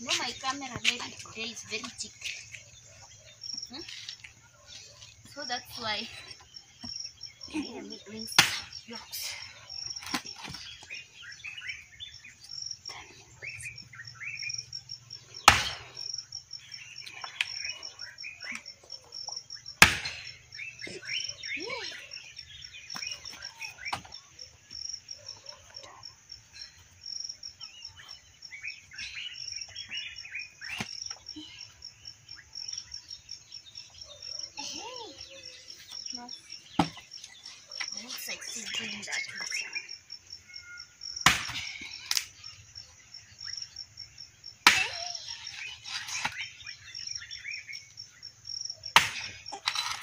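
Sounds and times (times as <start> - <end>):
birds chirping: 0.0 - 50.0
insects trilling: 0.0 - 50.0
axe chopping firewood: 8.4 - 8.7, 15.4 - 16.0, 19.8 - 20.4, 36.8 - 37.0, 41.2 - 42.3, 44.6 - 45.1, 48.9 - 50.0.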